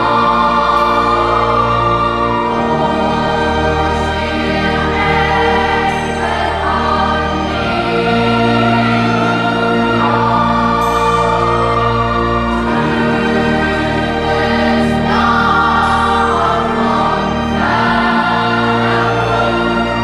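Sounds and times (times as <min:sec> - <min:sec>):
choir singing slow chords: 0:00.0 - 0:20.0.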